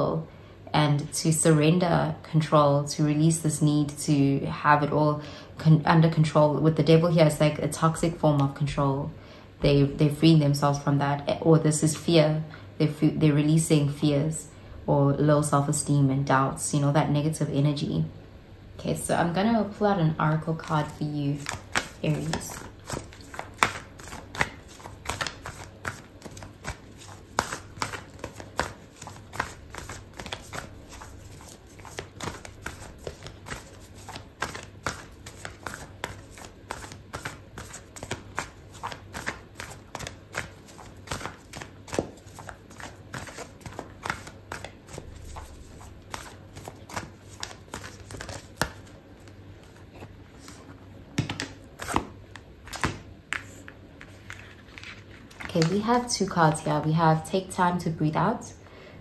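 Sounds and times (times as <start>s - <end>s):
cards being shuffled: 20.6s - 55.8s.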